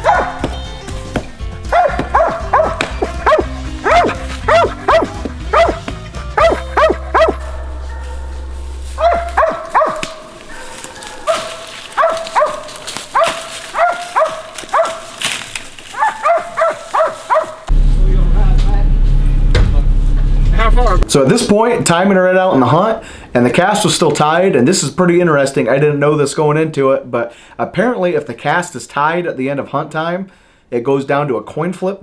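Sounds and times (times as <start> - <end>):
dog barking: 0.0 - 0.5, 1.7 - 15.2, 15.9 - 17.7
low music bed: 0.0 - 12.0, 17.7 - 21.3.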